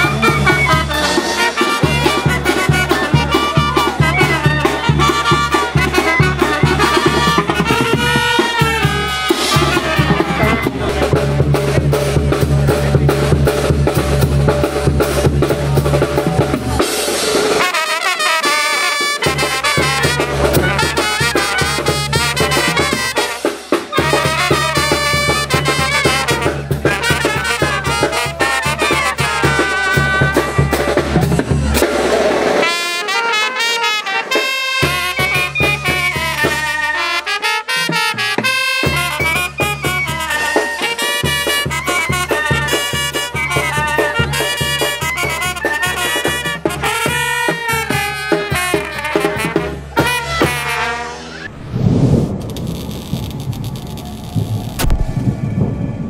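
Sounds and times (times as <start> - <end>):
brass band music: 0.0 - 55.2
low bass line: 51.5 - 56.0.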